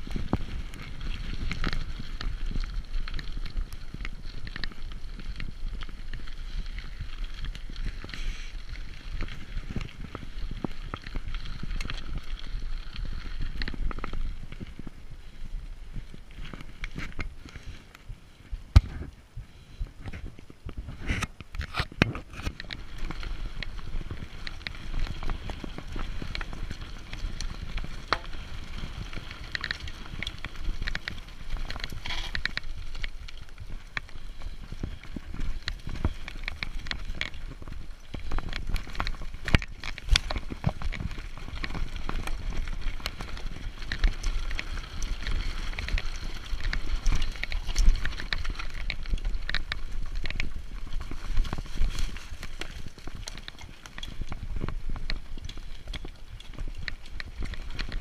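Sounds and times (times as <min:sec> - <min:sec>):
bike rattling and clicking: 0:00.0 - 0:58.0
wind rumble on microphone: 0:00.0 - 0:58.0.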